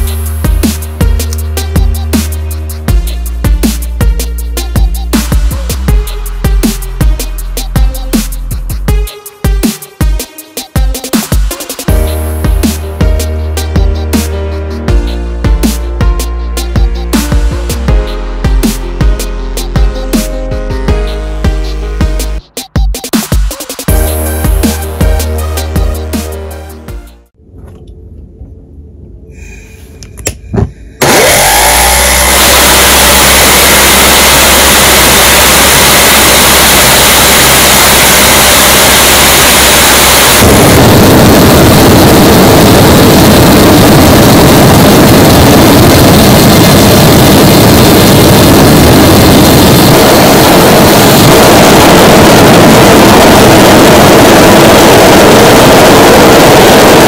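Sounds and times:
jet engine roaring: 0:31.0 - 0:57.0.

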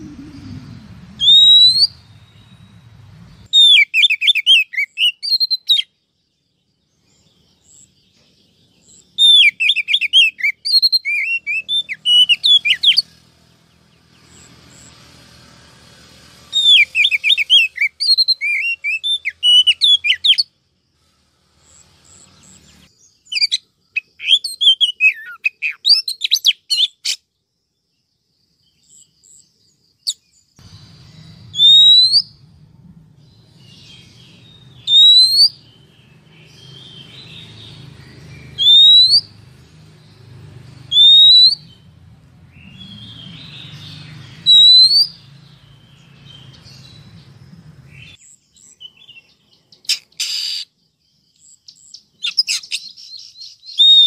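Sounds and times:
low hum: 0:00.0 - 0:03.5, 0:30.6 - 0:34.9
soft twittering: 0:00.0 - 0:05.7, 0:28.6 - 0:54.0
bird chirps and calls: 0:00.0 - 0:06.0, 0:06.8 - 0:27.4, 0:28.6 - 0:54.0.

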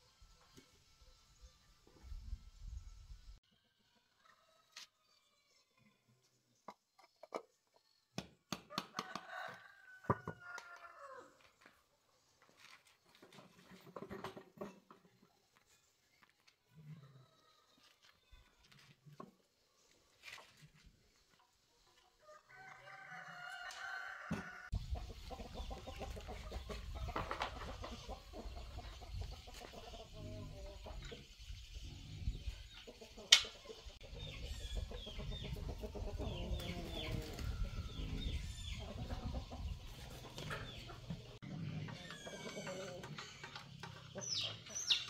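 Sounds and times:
rooster crowing: 0:08.7 - 0:11.3, 0:22.2 - 0:24.7
chickens clucking: 0:24.2 - 0:45.0.

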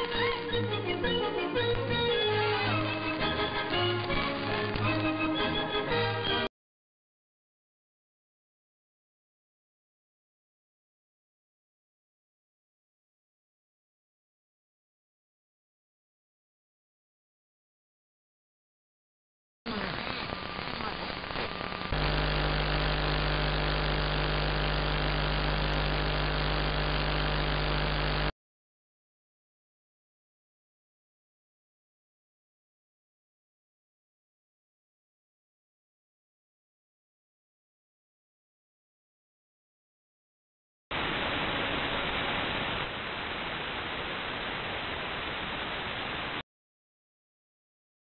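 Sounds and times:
radio hiss and crackle: 0:19.7 - 0:28.3, 0:40.9 - 0:46.4
buzzing hum with overtones: 0:20.3 - 0:28.3.

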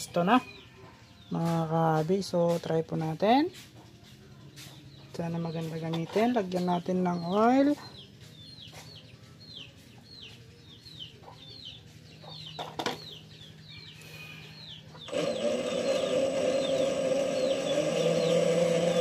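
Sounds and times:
bird chirping: 0:04.0 - 0:19.0
lathe motor humming: 0:15.1 - 0:19.0.

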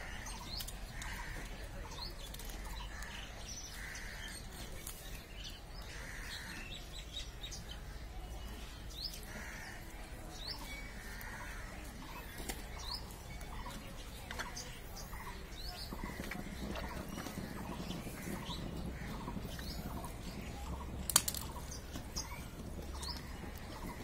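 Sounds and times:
small birds chirping: 0:00.0 - 0:24.0
steady low rumble: 0:15.1 - 0:24.0.

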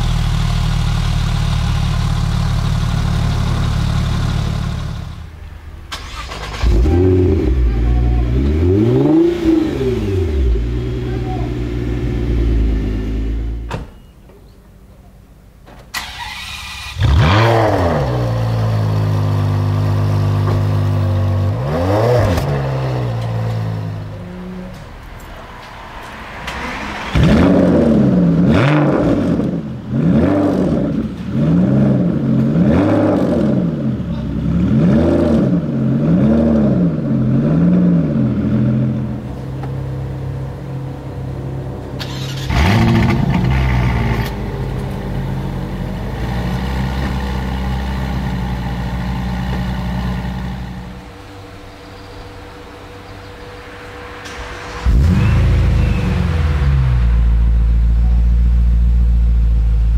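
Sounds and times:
car engine idling: 0:00.0 - 0:13.7, 0:38.2 - 0:59.9
car engine revving: 0:00.0 - 0:13.7, 0:16.0 - 0:25.6, 0:26.2 - 0:59.9
car engine starting with flare: 0:00.0 - 0:13.7, 0:15.9 - 0:24.1, 0:25.3 - 0:59.9.

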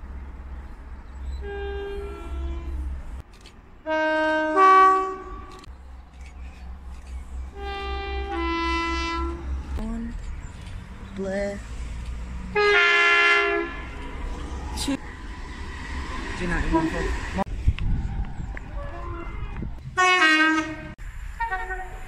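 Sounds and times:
two-tone train horn blasts: 0:01.4 - 0:02.9, 0:03.8 - 0:05.6, 0:07.5 - 0:09.6, 0:12.5 - 0:14.0, 0:20.0 - 0:22.0.

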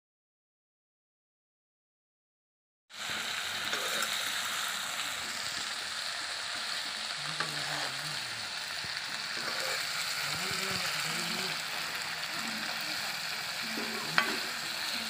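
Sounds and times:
food sizzling in hot oil: 0:02.9 - 0:15.0
metal spatula scraping pan: 0:03.7 - 0:04.2, 0:09.3 - 0:15.0.

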